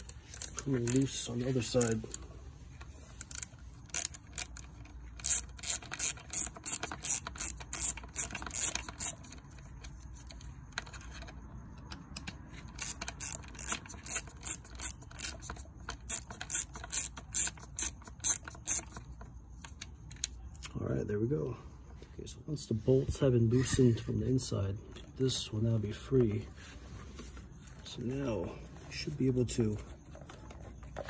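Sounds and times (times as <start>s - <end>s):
ratchet clicking: 0.0s - 2.3s, 3.1s - 11.2s, 11.9s - 19.9s.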